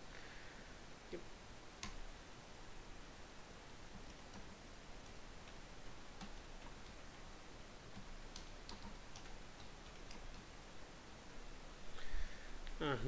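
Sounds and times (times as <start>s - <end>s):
steady background hiss: 0.0s - 13.0s
computer keyboard typing: 3.9s - 5.6s, 6.2s - 7.2s, 7.9s - 10.5s.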